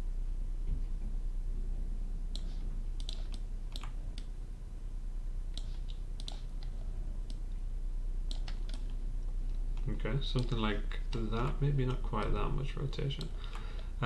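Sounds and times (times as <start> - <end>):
steady low hum: 0.0 - 14.0
computer keyboard and mouse clicks: 2.3 - 4.3, 5.5 - 7.4, 8.3 - 9.0.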